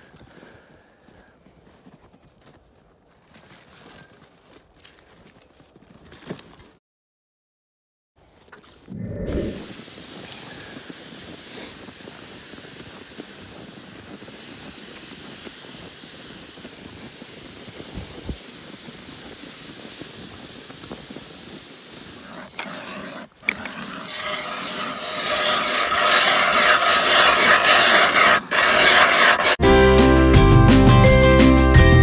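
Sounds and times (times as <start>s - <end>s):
footsteps crunching snow: 0.0s - 6.8s, 9.7s - 29.6s
sled sliding over snow: 9.5s - 29.6s
rough rubbing on microphone: 20.1s - 29.6s.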